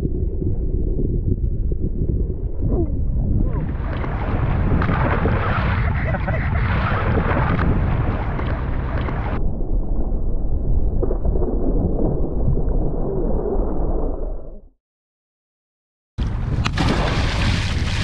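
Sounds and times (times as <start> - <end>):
wind buffeting microphone: 0.0 - 13.2, 16.2 - 18.0
water sloshing and splashing: 16.6 - 18.0.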